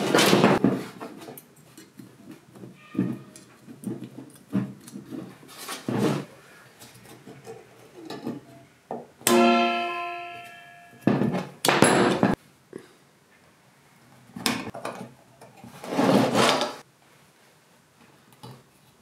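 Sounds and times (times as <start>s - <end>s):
sharp metallic clang: 9.2s - 12.4s
metal clattering on workbench: 11.0s - 12.4s.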